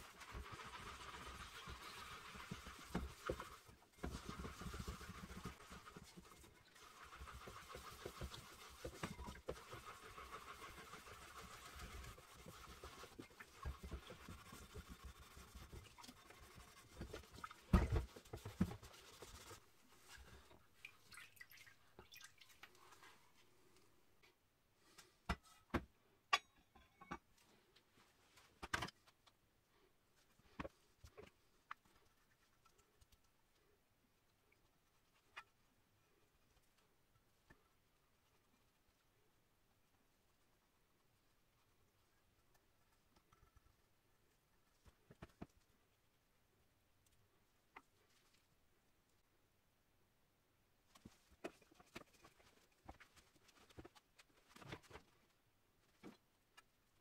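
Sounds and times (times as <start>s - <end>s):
scouring pad scrubbing metal: 0.0s - 17.7s.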